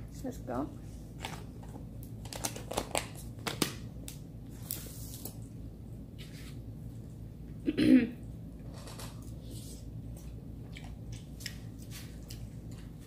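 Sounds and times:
soft chewing and mouth noises: 0:09.2 - 0:13.0.

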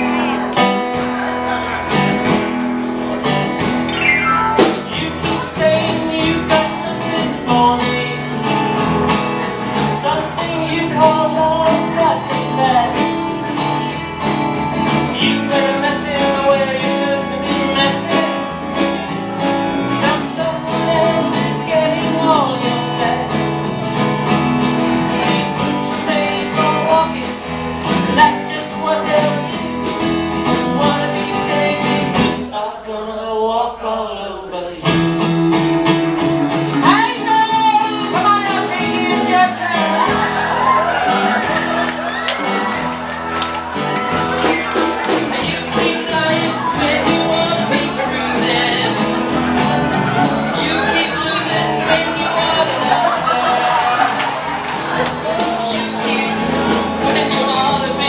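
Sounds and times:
strummed acoustic guitars: 0:00.0 - 0:58.0
person singing: 0:03.9 - 0:08.5, 0:09.7 - 0:14.1, 0:19.9 - 0:24.0, 0:25.1 - 0:29.8, 0:30.5 - 0:35.0, 0:36.4 - 0:41.8, 0:43.8 - 0:58.0.

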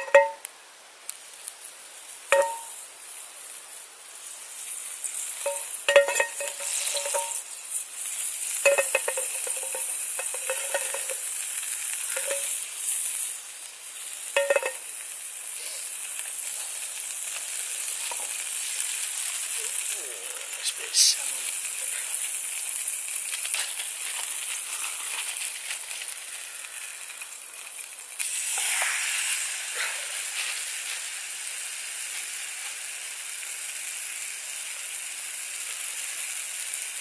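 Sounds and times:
metal pan clinking: 0:00.0 - 0:00.4, 0:02.3 - 0:02.8, 0:05.4 - 0:07.5, 0:08.6 - 0:11.3, 0:12.1 - 0:12.6, 0:14.4 - 0:14.9
stove sizzling hiss: 0:00.0 - 0:37.0.

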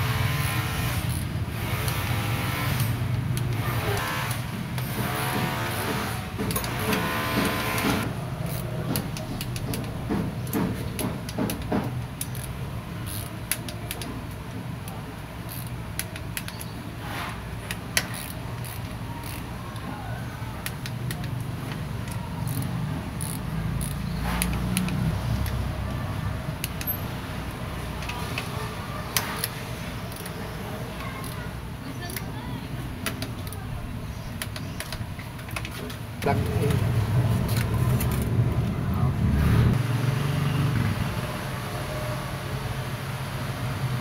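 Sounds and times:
torque wrench ratchet clicking: 0:01.0 - 0:02.0, 0:12.2 - 0:14.0, 0:15.5 - 0:16.7, 0:17.7 - 0:19.5, 0:22.0 - 0:25.6.

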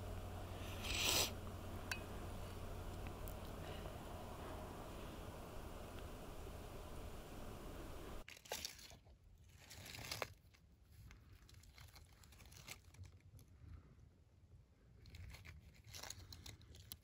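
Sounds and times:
faint steady hiss: 0:00.0 - 0:08.2.

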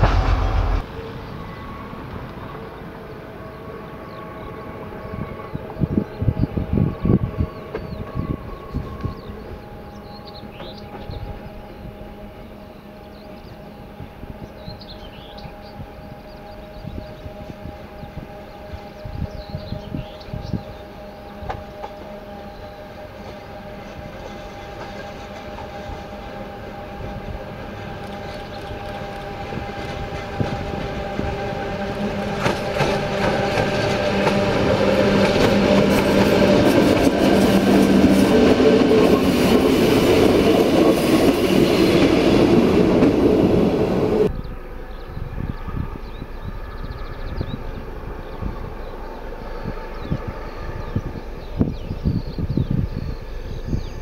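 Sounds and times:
electric locomotive motor hum: 0:00.0 - 0:54.0
train wheel clatter: 0:21.2 - 0:44.3.

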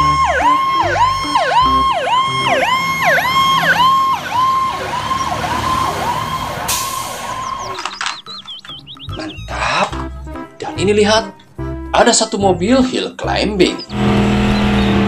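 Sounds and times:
fire truck siren yelping: 0:00.0 - 0:09.6, 0:13.8 - 0:15.0.

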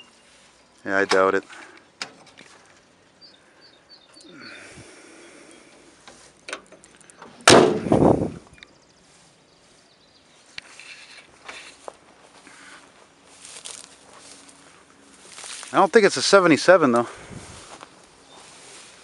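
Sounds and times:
faint bird chirps: 0:00.0 - 0:00.8, 0:02.7 - 0:05.8
steel truck door clunk: 0:06.5 - 0:08.0.

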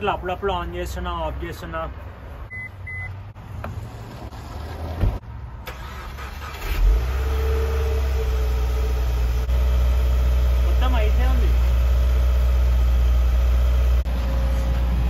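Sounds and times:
short beep: 0:02.5 - 0:03.2
car engine starting and idling: 0:02.5 - 0:15.0.

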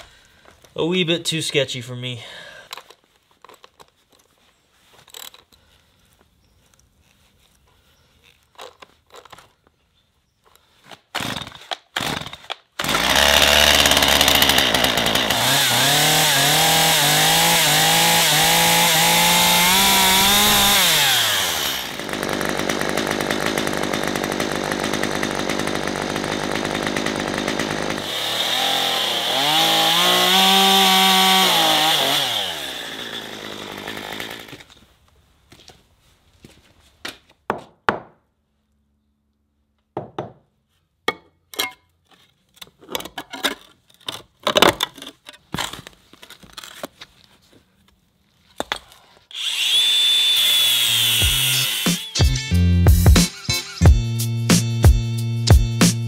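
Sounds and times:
chainsaw starting and revving: 0:11.2 - 0:34.8, 0:49.3 - 0:53.4.

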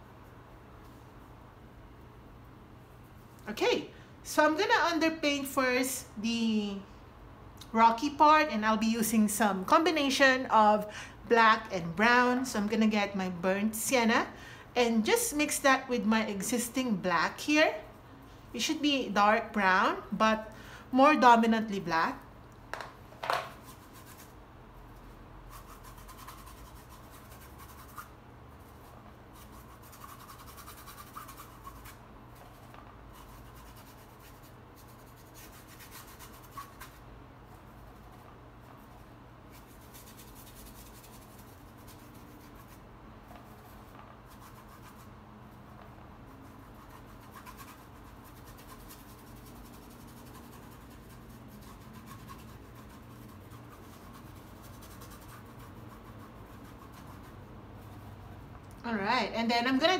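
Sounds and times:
paintbrush rubbing on canvas: 0:23.4 - 0:58.5.

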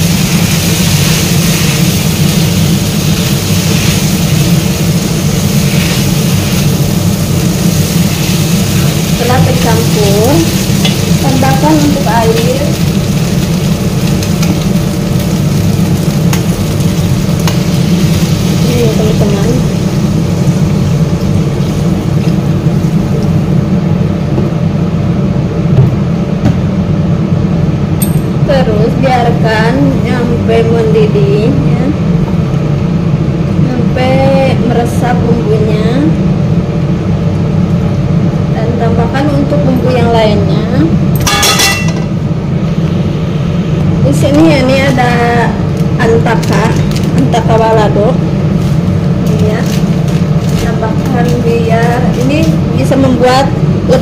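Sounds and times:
chicken sizzling in wok: 0:00.0 - 0:23.8
steady low rumble: 0:00.0 - 0:54.0.

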